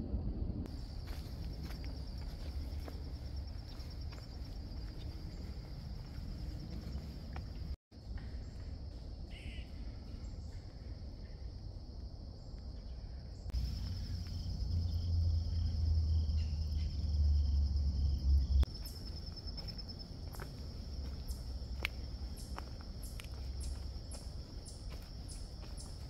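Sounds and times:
low rumble: 0.0 - 7.8
light footsteps: 0.6 - 7.8, 18.6 - 26.0
insects trilling: 0.7 - 7.8, 8.4 - 26.0.

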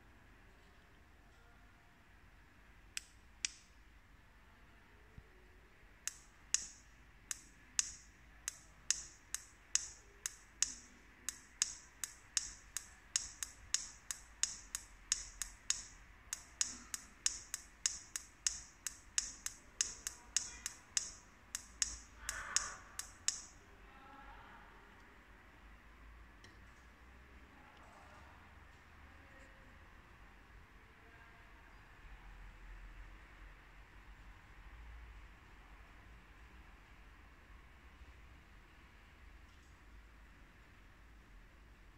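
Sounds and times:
remote control button clicks: 6.1 - 23.6.

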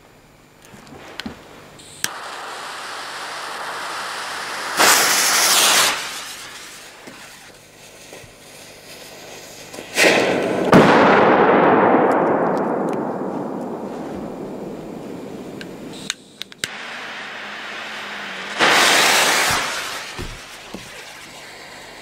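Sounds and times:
firecracker fuse hissing: 0.8 - 11.3, 13.8 - 22.0
firecracker exploding: 2.0 - 16.1, 16.7 - 22.0
rolling echo: 10.0 - 21.1.

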